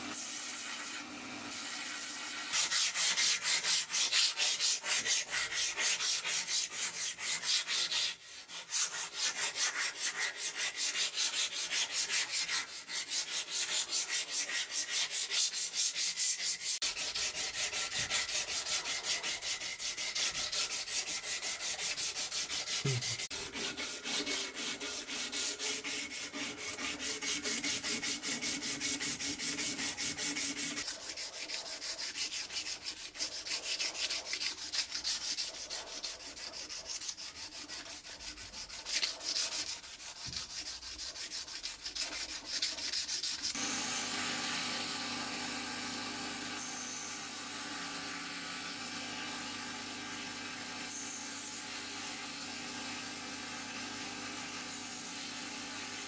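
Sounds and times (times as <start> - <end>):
hand sanding: 2.5 - 43.7
belt sander running: 43.6 - 51.0.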